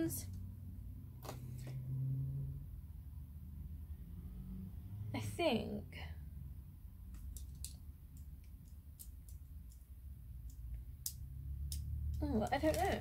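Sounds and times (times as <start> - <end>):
paper and packaging crackling: 12.2 - 13.0.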